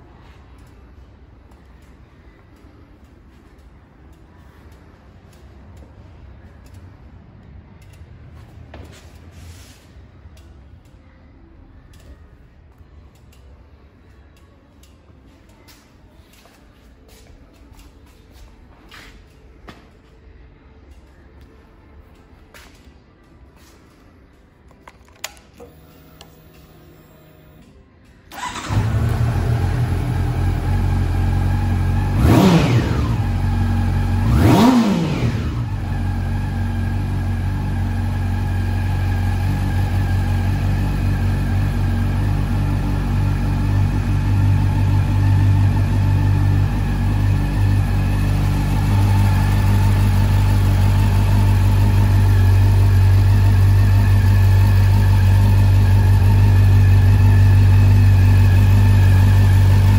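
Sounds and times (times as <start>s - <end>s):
motorcycle engine idling: 28.3s - 59.9s
motorcycle engine starting and revving: 28.3s - 59.9s.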